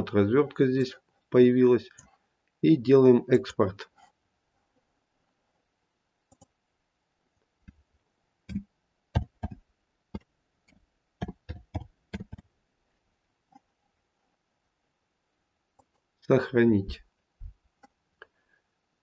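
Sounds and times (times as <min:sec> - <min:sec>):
keyboard typing: 0:08.5 - 0:09.6, 0:10.2 - 0:12.5.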